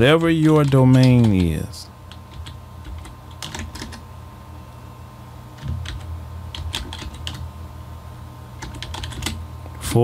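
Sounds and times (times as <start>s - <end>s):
keyboard typing: 0.0s - 4.0s, 5.6s - 7.5s, 8.6s - 9.4s
low steady hum: 0.0s - 10.0s.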